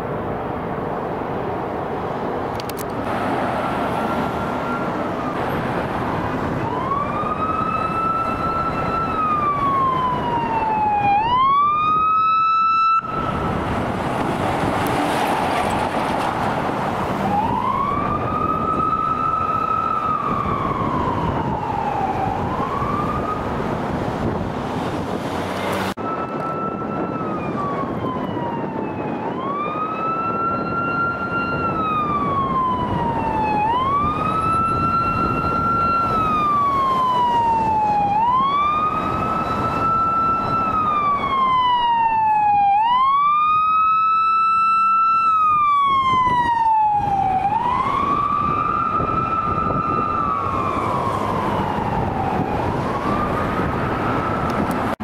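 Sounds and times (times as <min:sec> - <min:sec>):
road traffic noise: 0:00.0 - 0:55.0
police siren wailing: 0:02.6 - 0:55.0.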